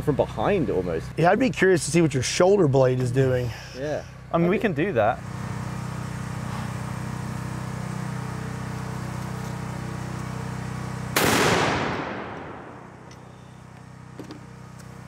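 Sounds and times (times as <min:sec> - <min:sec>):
steady low hum: 0:00.0 - 0:15.0
rifle shot echoing: 0:11.2 - 0:13.1.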